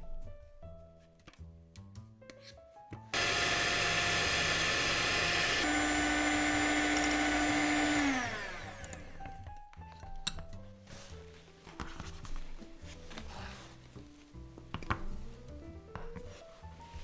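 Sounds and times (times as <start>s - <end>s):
soft plucked background music: 0.0s - 3.2s, 6.7s - 17.0s
electric hand mixer running: 3.2s - 9.5s.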